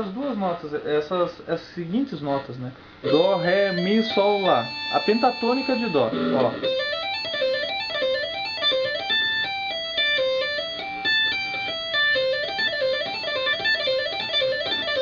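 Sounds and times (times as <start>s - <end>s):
electric guitar tapping: 3.0s - 15.0s.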